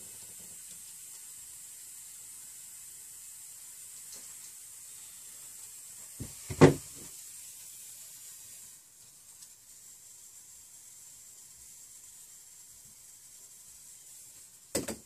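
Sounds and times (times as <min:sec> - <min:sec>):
faint steady hiss: 0:00.0 - 0:15.0.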